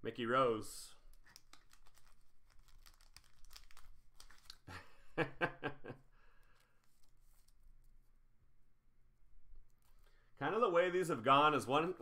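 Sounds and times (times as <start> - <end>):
plastic card sleeve crinkling: 0.9 - 4.7, 6.4 - 8.0.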